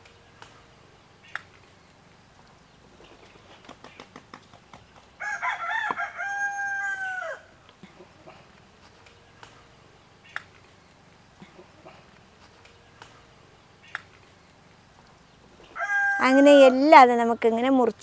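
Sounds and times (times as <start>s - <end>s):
rooster crowing: 5.2s - 7.6s, 15.7s - 17.0s.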